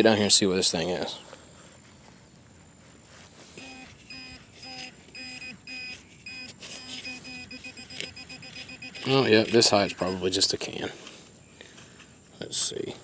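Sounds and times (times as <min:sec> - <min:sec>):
metal detector beeping: 0:03.6 - 0:11.2.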